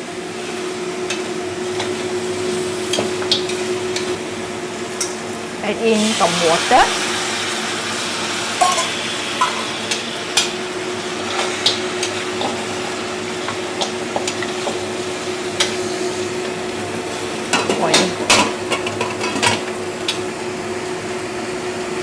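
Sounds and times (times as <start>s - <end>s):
meat sizzling in a wok: 0.0s - 22.0s
water boiling: 0.0s - 22.0s.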